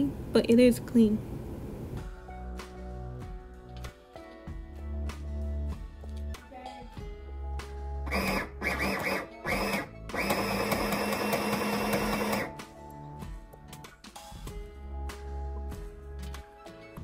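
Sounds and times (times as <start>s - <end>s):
sewing machine stitching: 8.1s - 12.5s.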